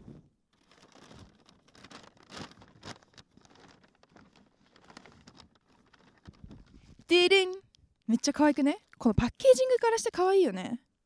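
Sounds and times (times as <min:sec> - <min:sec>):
paper bag rustling: 0:00.5 - 0:07.4.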